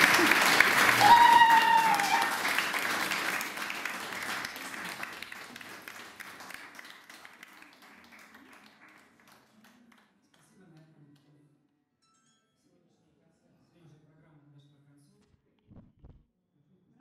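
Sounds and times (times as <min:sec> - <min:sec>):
audience applause: 0:00.0 - 0:09.8.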